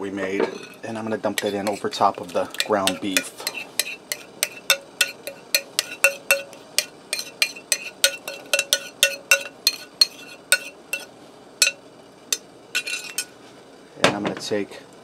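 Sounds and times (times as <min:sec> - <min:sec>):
metal spoon scraping ceramic bowl: 0:01.4 - 0:11.8, 0:12.8 - 0:13.3.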